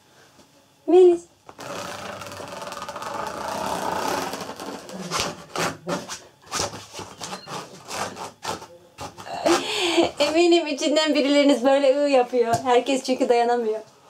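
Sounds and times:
fingertip scratching nylon mesh: 0:01.5 - 0:09.6.

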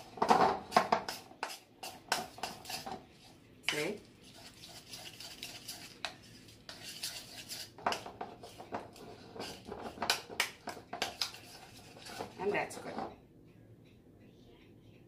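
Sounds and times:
spoon scraping a mixing bowl: 0:00.0 - 0:13.1.

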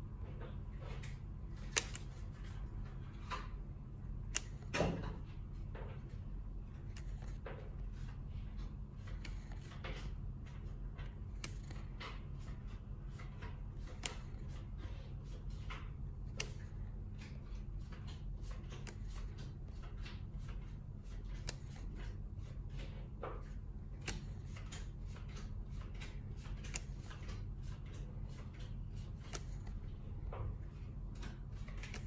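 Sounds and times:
steady low hum: 0:00.0 - 0:32.0
cards sliding and rustling: 0:01.5 - 0:02.6, 0:06.8 - 0:08.2, 0:08.9 - 0:09.8, 0:11.3 - 0:12.5, 0:13.1 - 0:15.6, 0:16.2 - 0:19.8, 0:20.5 - 0:22.6, 0:24.0 - 0:30.0, 0:31.3 - 0:32.0.

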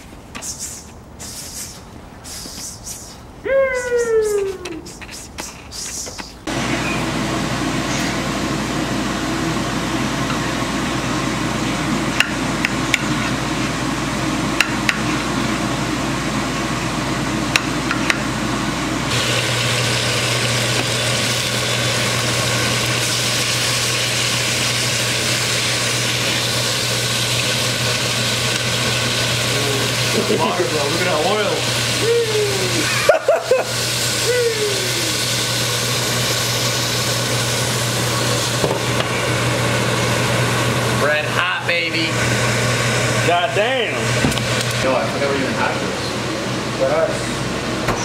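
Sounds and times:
meat patties sizzling in frying pan: 0:19.1 - 0:40.8.

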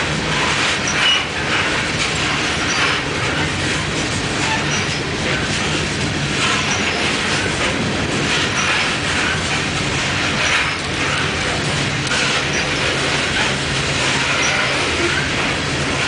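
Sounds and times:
train wheels rumbling and clattering: 0:00.0 - 0:16.0
wheels squealing: 0:12.1 - 0:16.0.

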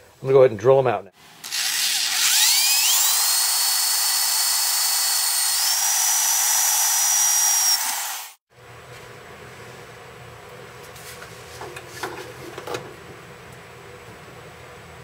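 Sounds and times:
electric drill whining: 0:01.4 - 0:08.4.

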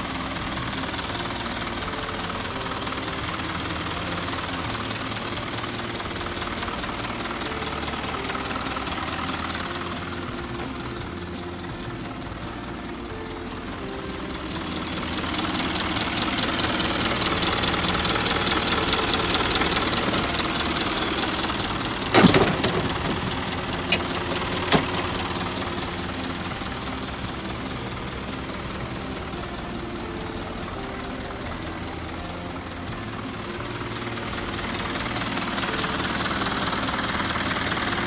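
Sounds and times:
truck engine idling: 0:00.0 - 0:38.0
sharp knocks: 0:22.1 - 0:25.0.

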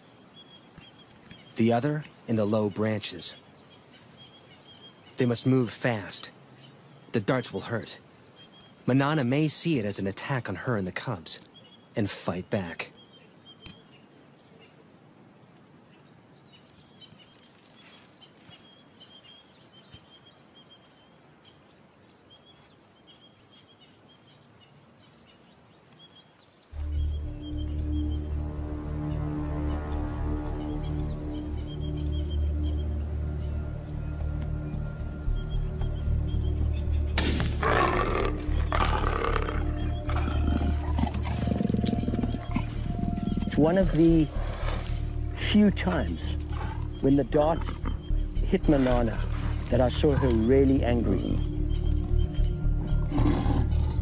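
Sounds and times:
leaves rustling: 0:13.2 - 0:54.0
small bird chirping: 0:16.0 - 0:21.7, 0:30.8 - 0:54.0
music with low sustained notes: 0:26.8 - 0:54.0
leopard snarling and growling: 0:37.4 - 0:51.5, 0:52.8 - 0:54.0.

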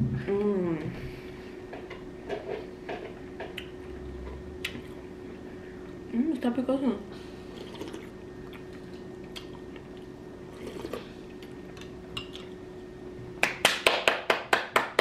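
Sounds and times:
steady low hum: 0:00.0 - 0:15.0
spoon and chewing: 0:07.5 - 0:12.6
hands clapping quickly: 0:13.4 - 0:15.0.

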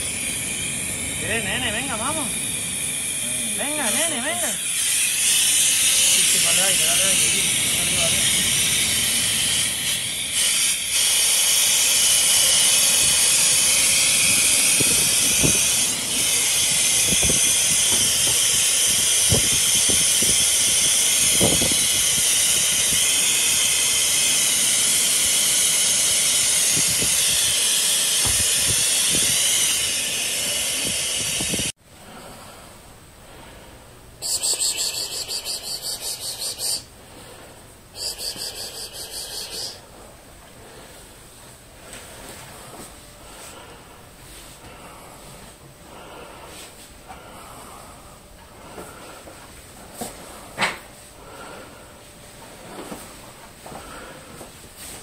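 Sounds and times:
air hissing from hose: 0:00.0 - 0:31.8, 0:34.2 - 0:37.0, 0:37.9 - 0:39.9
fast rhythmic rasping: 0:34.2 - 0:36.9.

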